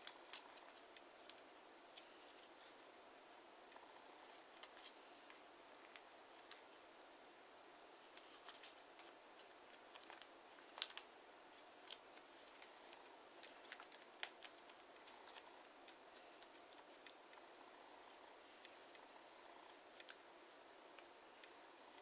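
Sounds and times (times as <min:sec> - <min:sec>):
paper crackling being creased: 0:08.1 - 0:17.4.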